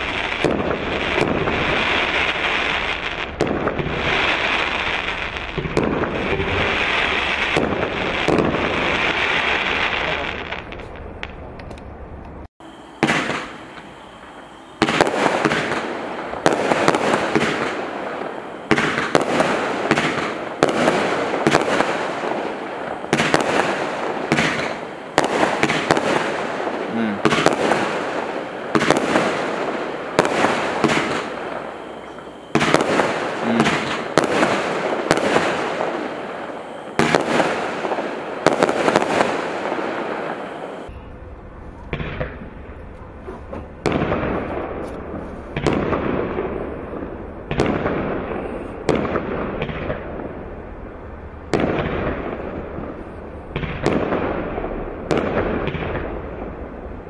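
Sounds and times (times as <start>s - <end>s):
firework shells bursting: 12.9s - 41.0s.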